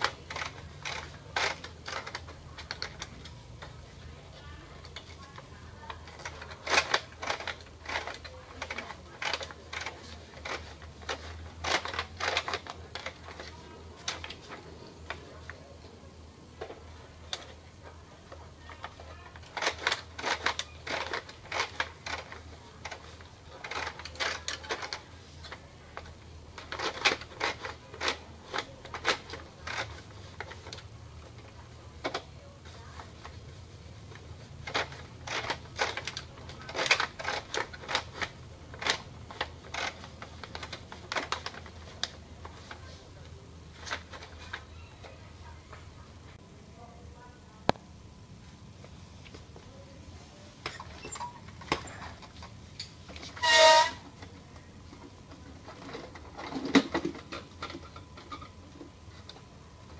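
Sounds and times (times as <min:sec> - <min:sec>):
plastic clicks and rattles: 0:00.0 - 0:03.8, 0:04.8 - 0:14.5, 0:18.8 - 0:32.4, 0:34.1 - 0:42.8, 0:55.0 - 0:59.9.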